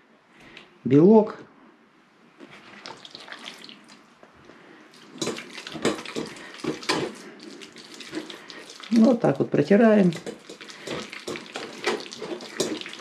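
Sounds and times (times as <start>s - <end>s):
wet squelching scrapes through sieve: 2.5s - 4.0s, 5.0s - 9.3s, 10.0s - 13.0s.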